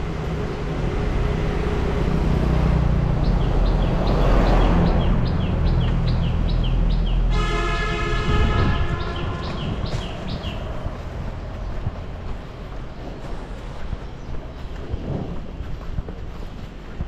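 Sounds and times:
bus passing by: 0.0 - 17.0
bird chirping: 3.2 - 7.3, 8.2 - 15.0
vehicle horn: 7.2 - 10.6.

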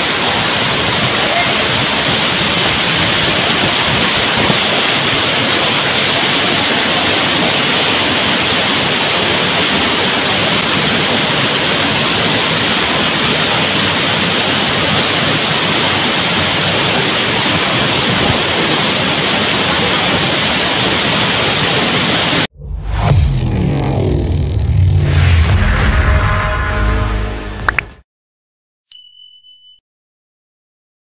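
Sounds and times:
waterfall rushing: 0.0 - 22.5.

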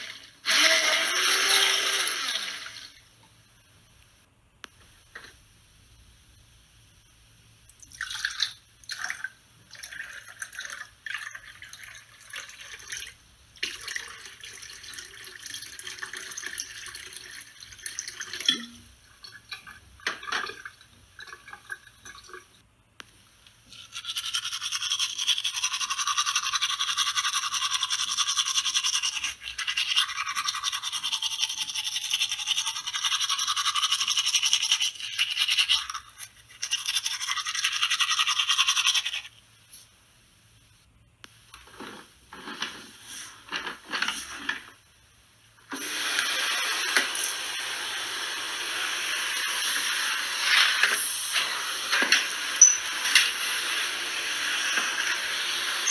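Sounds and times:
toothbrush scrubbing teeth: 23.7 - 39.3.

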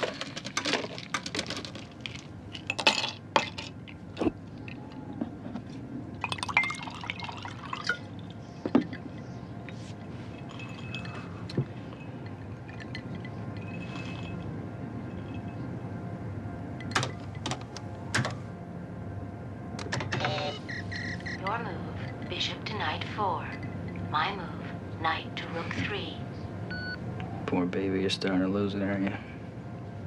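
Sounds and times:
low steady hum: 0.0 - 30.0
liquid pouring: 6.2 - 9.0
glass clinking: 6.2 - 14.5.

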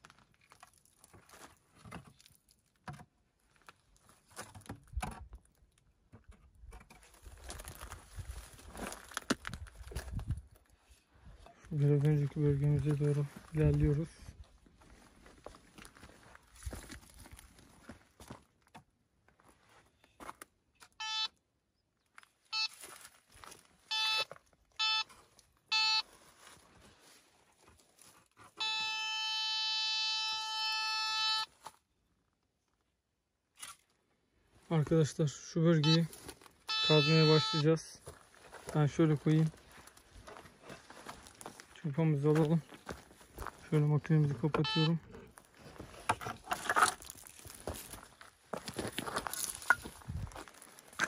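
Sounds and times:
footsteps on stony ground: 0.0 - 2.6, 3.4 - 20.9, 22.0 - 28.5, 35.9 - 51.0
metal detector beeps: 20.9 - 21.4, 22.5 - 22.8, 23.9 - 26.1, 28.6 - 31.6, 35.7 - 36.1, 36.7 - 37.9, 44.2 - 45.2.

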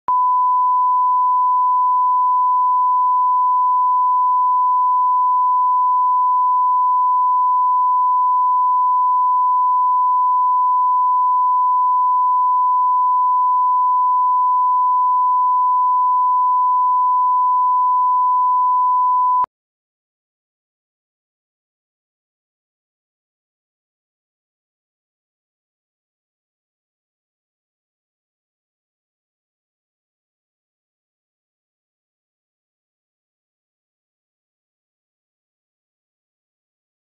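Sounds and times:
steady sine tone: 0.1 - 19.5.

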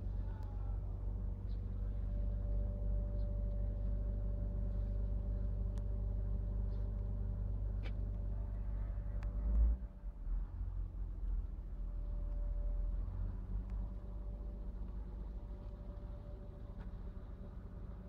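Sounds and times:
faint clicks: 9.2 - 9.6.

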